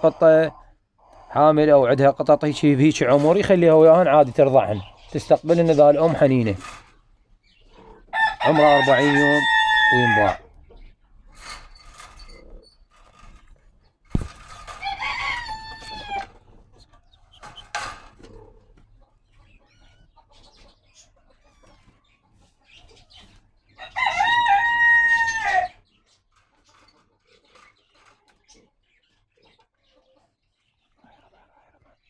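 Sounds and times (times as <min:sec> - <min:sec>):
rooster crowing: 0:08.1 - 0:10.4, 0:14.8 - 0:16.4, 0:23.8 - 0:25.8.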